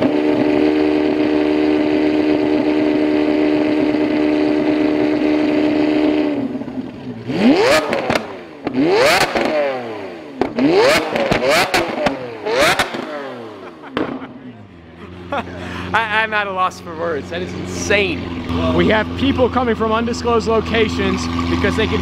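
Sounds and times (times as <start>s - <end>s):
exhaust crackles and pops: 0.0s - 14.4s
car engine revving: 0.0s - 22.0s.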